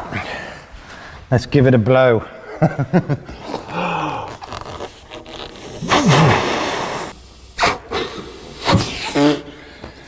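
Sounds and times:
man blowing hard into tube: 4.1 - 9.6.

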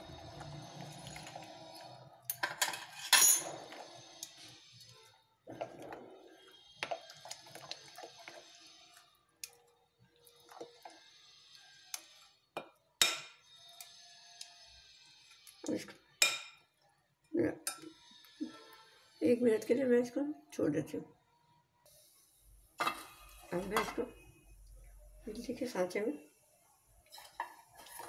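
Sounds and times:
spoon scraping and clinking glass: 0.9 - 9.1
wet batter mixing: 3.5 - 12.8, 13.4 - 16.1.

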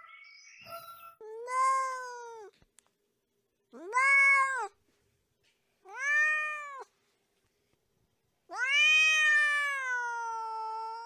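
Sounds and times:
kitten meowing: 3.8 - 4.8, 5.9 - 6.9, 8.5 - 11.0.

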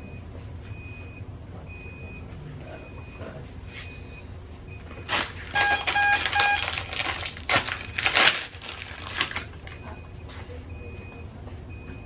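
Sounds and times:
wipe packet crinkling: 5.1 - 9.8.

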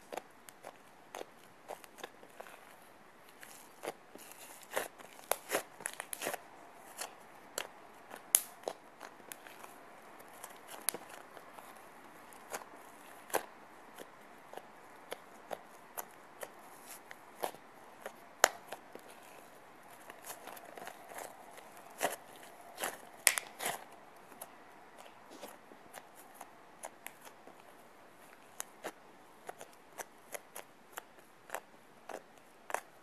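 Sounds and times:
slime clicking and popping: 7.0 - 9.4, 22.8 - 23.8.

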